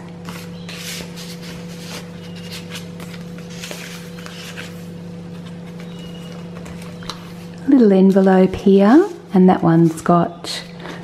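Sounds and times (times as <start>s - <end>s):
low electrical hum: 0.0s - 11.0s
pages turning: 0.2s - 7.5s
paper rustling: 0.2s - 7.5s.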